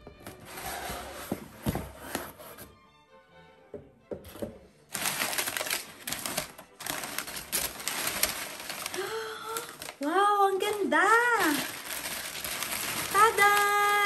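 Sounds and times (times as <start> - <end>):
paper rustling and crinkling: 4.9 - 14.0.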